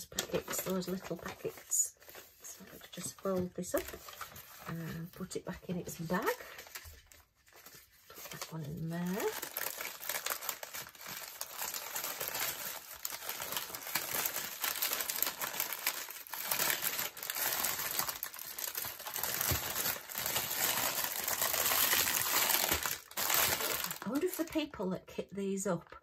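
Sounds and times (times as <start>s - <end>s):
plastic packaging crinkling: 0.0s - 24.6s
small beads rattling in packets: 8.2s - 24.4s.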